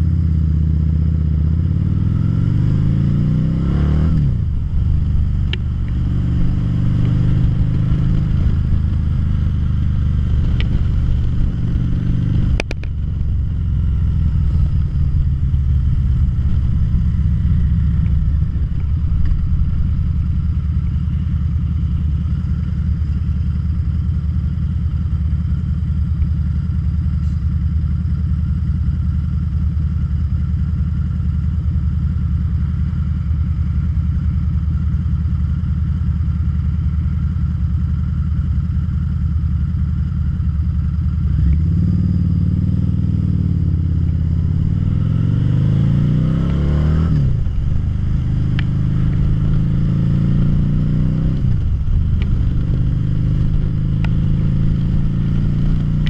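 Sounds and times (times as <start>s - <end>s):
motorcycle accelerating and upshifting: 0.0s - 27.0s, 40.0s - 56.0s
motorcycle engine idling: 4.3s - 45.8s, 47.2s - 56.0s.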